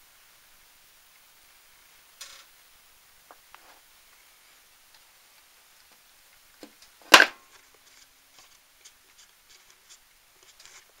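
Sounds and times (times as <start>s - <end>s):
faint clicks and rubbing: 7.5s - 11.0s.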